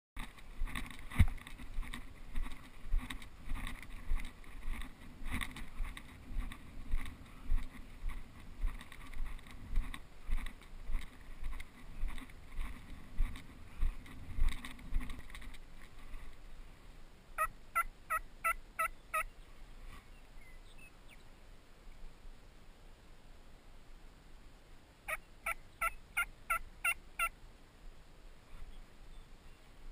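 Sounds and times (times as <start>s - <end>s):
footsteps crunching dry grass: 0.2s - 16.5s.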